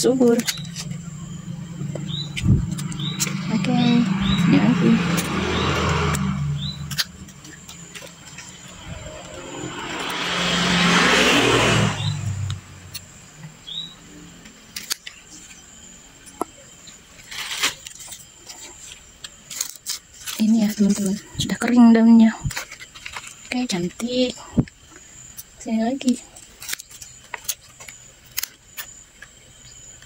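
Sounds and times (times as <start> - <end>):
vehicle passing by: 1.4 - 13.0.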